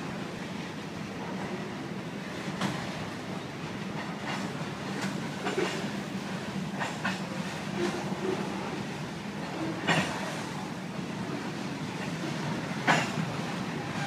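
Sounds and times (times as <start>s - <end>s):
freight train rumbling over bridge: 0.0s - 14.0s
train wheel clicks over rail joints: 4.0s - 5.9s, 6.7s - 8.3s, 9.4s - 10.4s, 12.8s - 13.4s.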